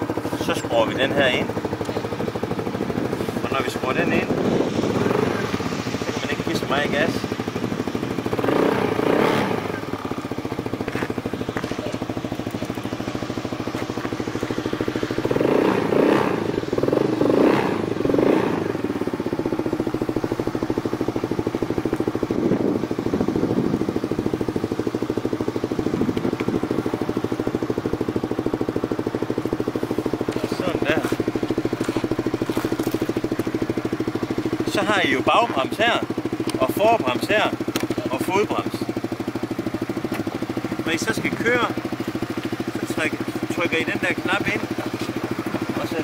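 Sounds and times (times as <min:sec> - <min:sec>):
small engine idling and revving: 0:00.0 - 0:46.0.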